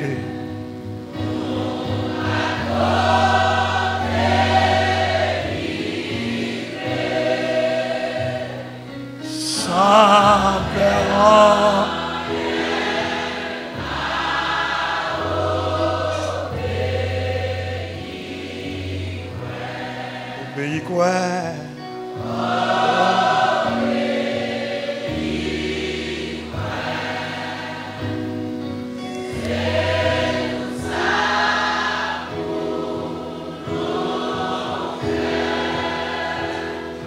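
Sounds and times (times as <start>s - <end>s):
congregation singing a hymn: 0.0s - 37.0s
voice singing with vibrato: 9.3s - 12.0s, 22.7s - 23.9s.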